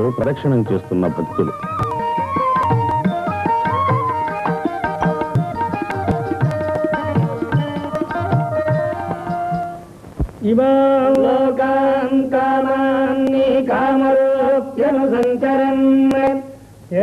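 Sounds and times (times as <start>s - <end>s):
drum strokes: 1.0s - 10.4s.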